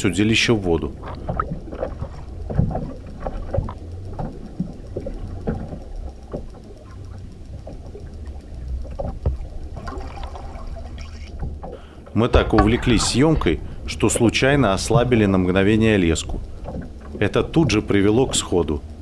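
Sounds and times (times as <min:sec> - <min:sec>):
muffled underwater noise: 0:00.0 - 0:19.0
small knocks and taps: 0:08.8 - 0:10.0, 0:16.3 - 0:19.0.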